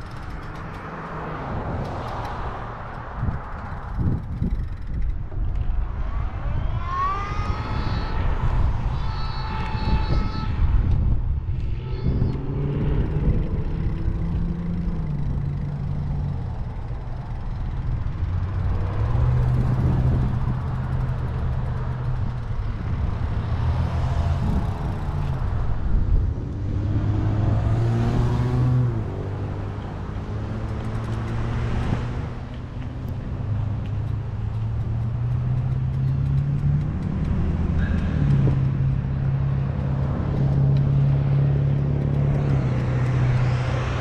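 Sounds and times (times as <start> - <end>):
road traffic passing: 0.0 - 44.0
wind buffeting microphone: 0.0 - 44.0
low motor drone: 3.8 - 44.0.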